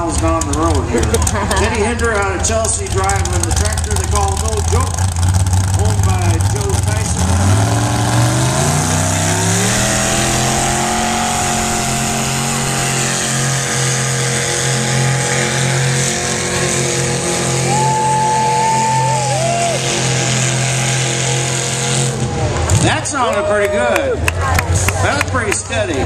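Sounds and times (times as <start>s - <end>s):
tractor engine revving: 0.0s - 23.4s
high whine: 6.7s - 19.6s.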